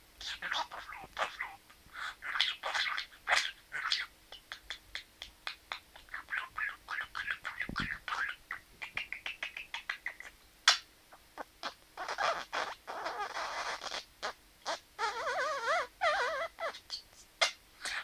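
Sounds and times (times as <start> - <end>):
budgerigar chattering: 0.2 - 10.8, 11.4 - 18.0
budgerigar warble: 0.2 - 10.8
budgerigar clicks: 4.3 - 10.9.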